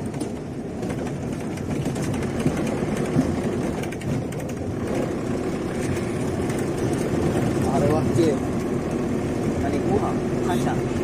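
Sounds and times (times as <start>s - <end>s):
car engine and road rumble: 0.0s - 11.0s.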